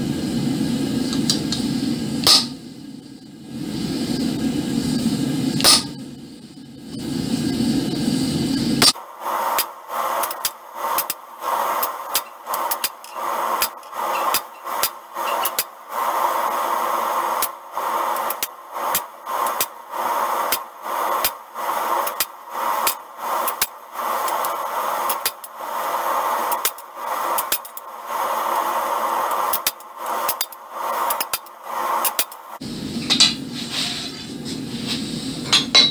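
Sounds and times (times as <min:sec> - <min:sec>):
hammer striking chisel on hot iron: 0:02.2 - 0:02.6, 0:05.6 - 0:06.0, 0:09.6 - 0:15.7, 0:33.0 - 0:33.5, 0:35.4 - 0:35.9.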